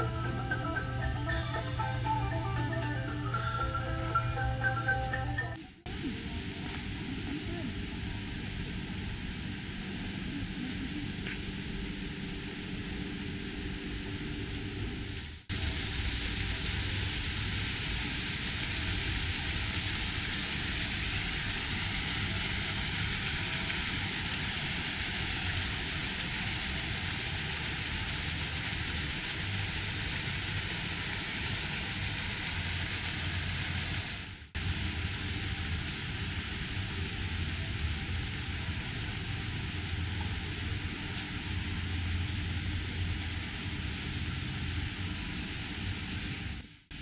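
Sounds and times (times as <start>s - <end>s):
outdoor background noise: 0.0s - 47.0s.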